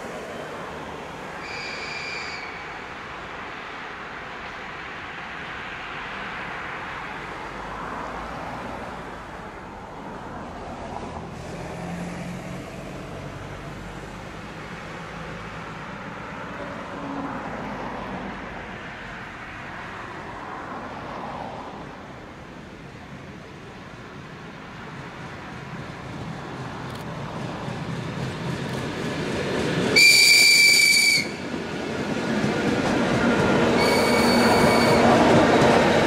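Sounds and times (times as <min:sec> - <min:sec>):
train wheels rumbling on rail: 0:10.0 - 0:20.4, 0:21.2 - 0:36.0.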